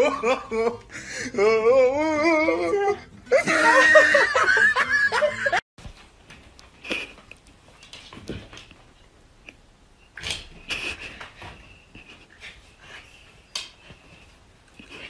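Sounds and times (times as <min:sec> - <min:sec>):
person laughing in a high voice: 0:00.0 - 0:05.6.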